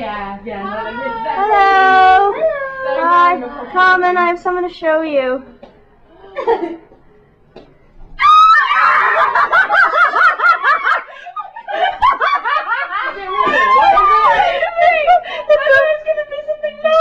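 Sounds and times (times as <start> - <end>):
woman screaming: 8.2 - 9.2
woman shrieking and laughing: 8.2 - 15.9.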